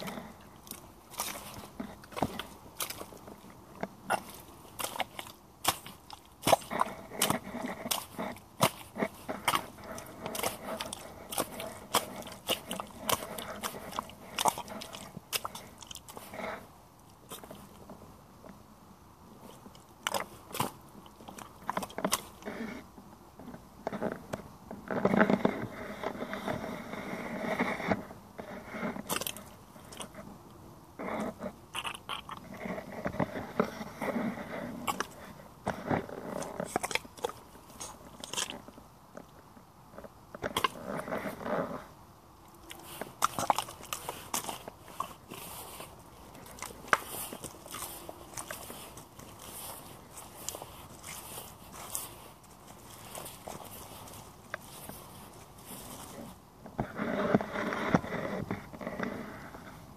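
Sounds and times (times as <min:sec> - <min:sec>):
rubber boots squelching in mud: 0:00.0 - 0:17.8, 0:19.5 - 0:22.4, 0:29.0 - 0:30.1, 0:42.5 - 0:56.4.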